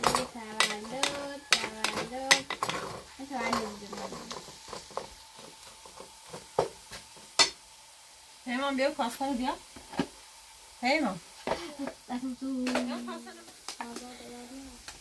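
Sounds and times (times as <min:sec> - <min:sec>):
utensil scraping a pot: 0:00.0 - 0:06.5.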